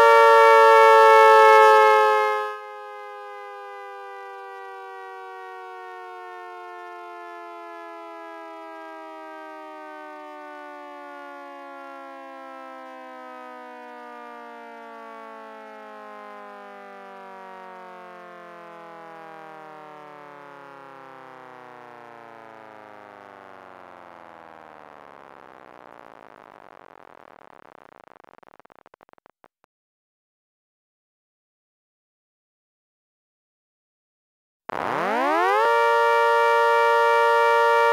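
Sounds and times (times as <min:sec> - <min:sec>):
siren winding down: 0:00.0 - 0:14.0, 0:14.9 - 0:27.9, 0:34.7 - 0:37.9.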